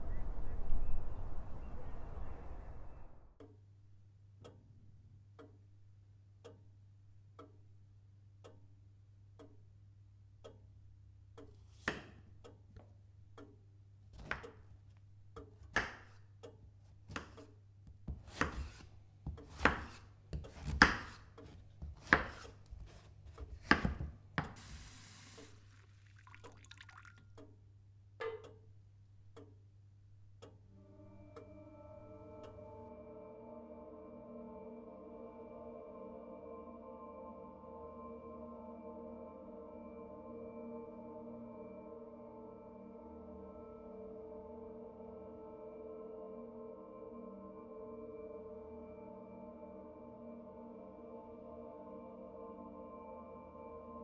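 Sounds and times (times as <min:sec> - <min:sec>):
soft ticks: 0:04.4 - 0:04.7, 0:05.3 - 0:05.7, 0:06.4 - 0:08.7, 0:09.3 - 0:09.7, 0:10.4 - 0:10.7, 0:11.3 - 0:11.6, 0:12.4 - 0:15.8, 0:16.4 - 0:17.6, 0:29.3 - 0:29.7, 0:30.3 - 0:30.6
brief hiss: 0:24.6 - 0:26.0
ambient music tones: 0:30.4 - 0:54.0.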